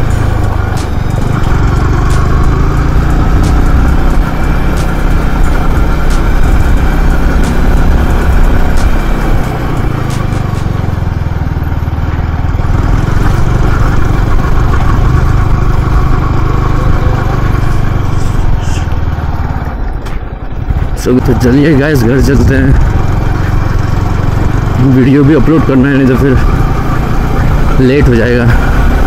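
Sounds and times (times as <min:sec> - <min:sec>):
motorcycle engine running: 0:00.0 - 0:29.0.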